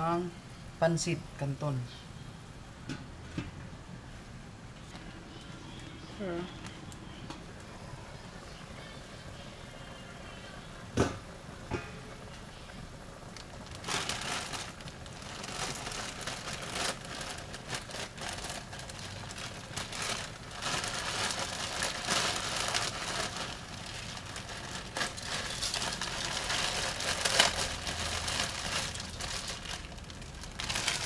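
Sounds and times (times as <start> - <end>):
plastic bag crinkling: 13.3 - 31.0.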